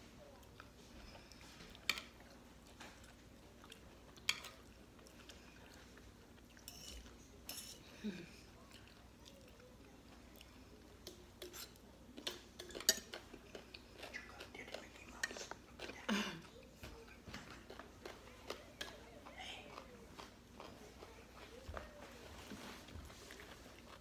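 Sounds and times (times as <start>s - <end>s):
chewing crunchy salad: 0.1s - 24.0s
fork and spoon scraping a plate: 6.6s - 7.8s, 11.4s - 13.3s.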